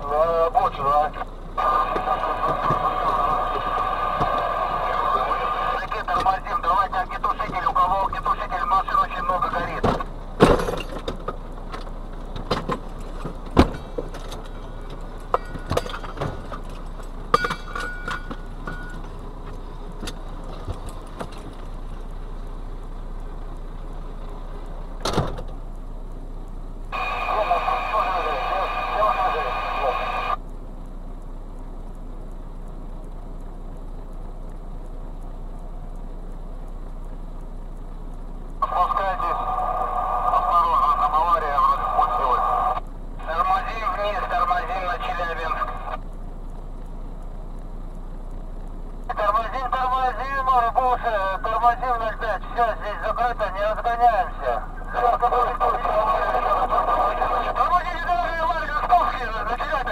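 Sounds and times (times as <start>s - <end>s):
road noise inside vehicle: 0.0s - 59.9s
truck engine rumble: 0.0s - 59.9s
faint ticking: 18.3s - 27.6s, 30.3s - 42.1s, 42.8s - 59.9s.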